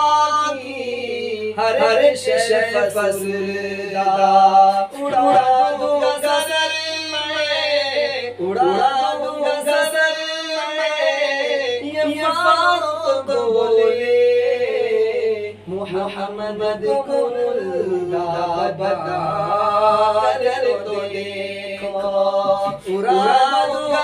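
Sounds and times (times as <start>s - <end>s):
man singing unaccompanied: 0.0s - 24.0s.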